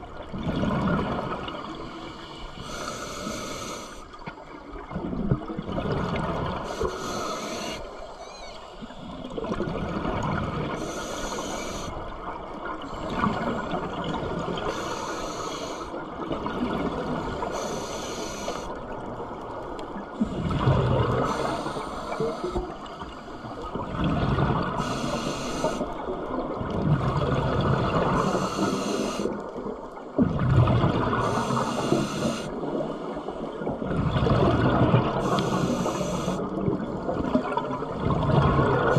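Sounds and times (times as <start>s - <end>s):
gurgle of exhaled bubbles: 0.0s - 2.1s, 4.4s - 6.8s, 8.9s - 10.8s, 12.1s - 14.7s, 15.9s - 17.5s, 18.9s - 24.9s, 25.9s - 28.6s, 29.4s - 38.9s
regulator inhale hiss: 2.2s - 4.2s, 6.7s - 9.0s, 10.8s - 12.0s, 14.6s - 16.0s, 17.4s - 18.8s, 21.2s - 23.7s, 24.8s - 26.0s, 28.1s - 29.5s, 31.2s - 33.4s, 35.2s - 36.5s.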